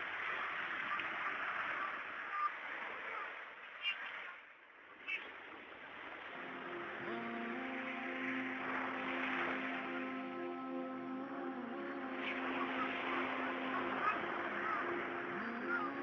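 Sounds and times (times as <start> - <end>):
music with held notes: 6.3 - 16.0.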